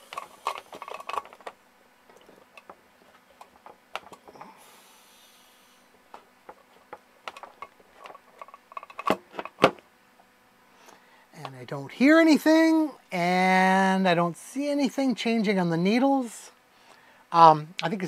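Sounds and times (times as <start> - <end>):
gas hissing: 4.2 - 6.0.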